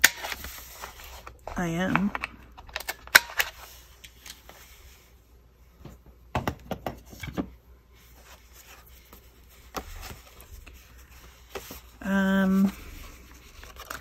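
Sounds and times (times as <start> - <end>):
paper handling: 8.0 - 14.0.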